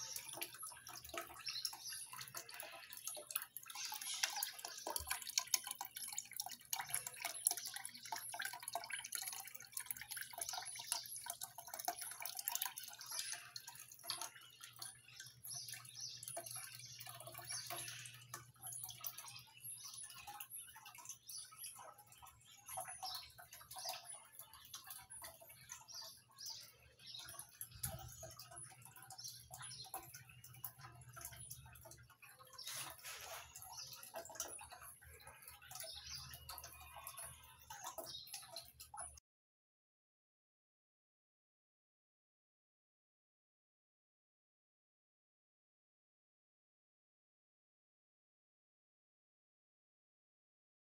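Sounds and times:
dripping water: 0:00.0 - 0:39.2
water trickling into basin: 0:00.0 - 0:39.2.

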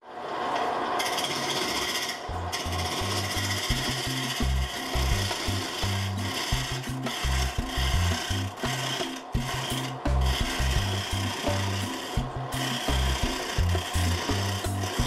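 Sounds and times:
lathe gouge rasping wood: 0:01.0 - 0:15.0
background music with bass line: 0:02.3 - 0:15.0.

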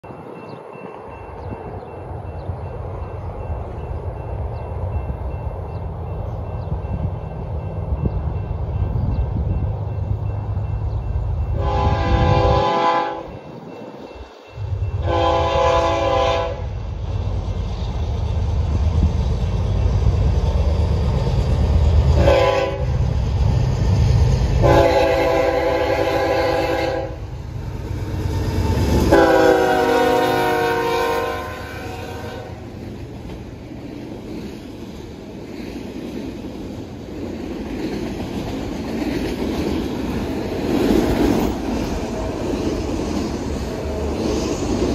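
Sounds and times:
train wheels clickety-clack on rails: 0:00.0 - 0:44.9
locomotive air horn blasts: 0:11.5 - 0:13.4, 0:15.0 - 0:16.8, 0:22.2 - 0:23.0, 0:24.6 - 0:27.3, 0:29.1 - 0:32.6.

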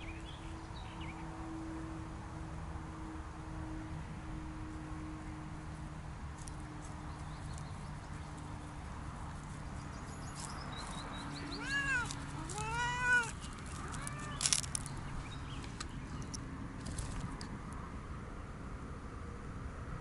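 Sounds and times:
cat meowing: 0:11.6 - 0:14.4.

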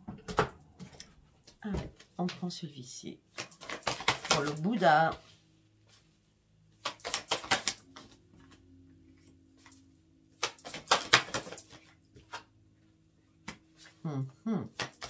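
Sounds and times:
cards clicking and slapping: 0:03.3 - 0:04.8, 0:06.8 - 0:08.2, 0:10.4 - 0:12.5, 0:14.7 - 0:15.0.

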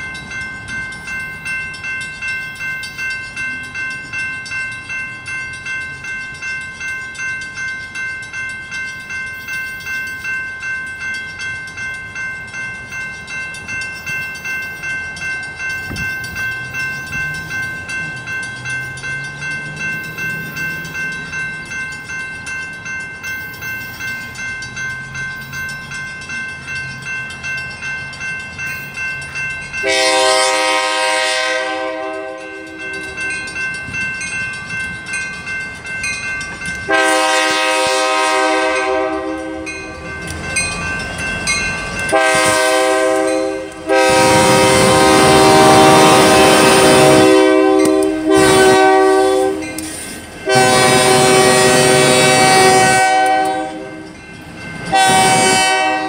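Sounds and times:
crossing bell ringing: 0:00.0 - 0:56.0
train rumble and wheel noise: 0:00.0 - 0:56.0
locomotive air horn blasts: 0:29.8 - 0:32.8, 0:36.9 - 0:39.7, 0:42.1 - 0:49.8, 0:50.4 - 0:54.0, 0:54.9 - 0:56.0.

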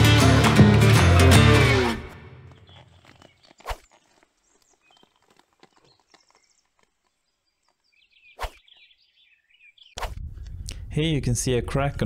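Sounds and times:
small birds chirping faintly: 0:02.5 - 0:10.0.

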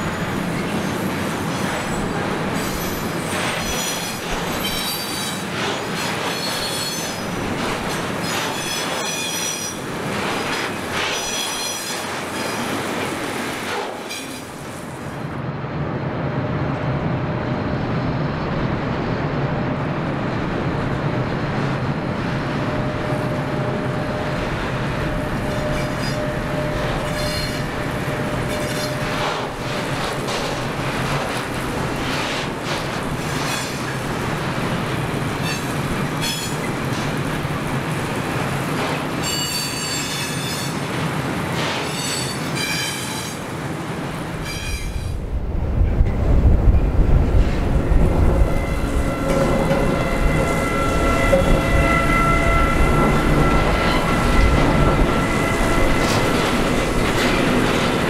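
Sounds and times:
train wheels squealing: 0:00.0 - 0:07.3, 0:08.2 - 0:09.8, 0:11.0 - 0:12.7, 0:25.0 - 0:29.5, 0:39.2 - 0:40.8, 0:41.8 - 0:43.4, 0:44.4 - 0:45.2, 0:48.4 - 0:56.8
train low rumble: 0:00.0 - 0:58.0
wheels clattering over rails: 0:25.5 - 0:40.6.

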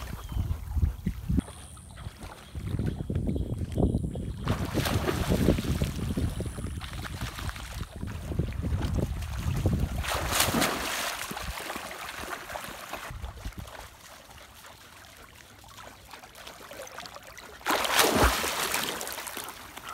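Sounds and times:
dog splashing in water: 0:04.4 - 0:19.9
water lapping: 0:04.4 - 0:19.9.

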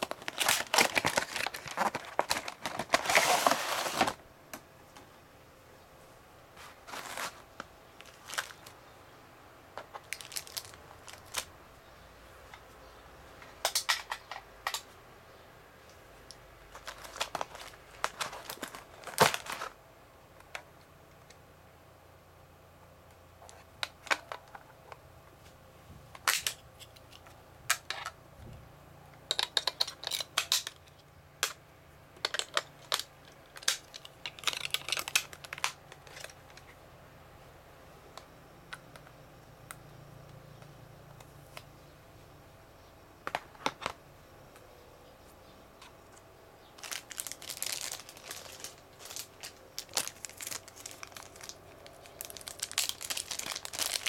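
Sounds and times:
plastic packaging clicks and knocks: 0:16.7 - 0:19.7, 0:32.2 - 0:36.6.

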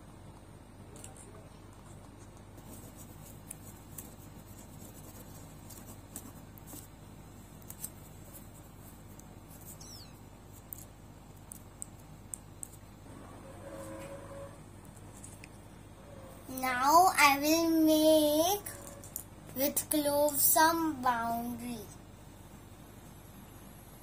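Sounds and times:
low steady hum: 0:00.0 - 0:24.0
short falling squeak: 0:09.8 - 0:10.2.

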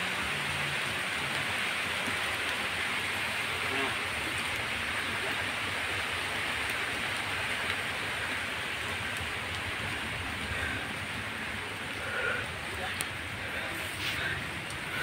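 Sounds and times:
rain on foliage: 0:00.0 - 0:15.0.

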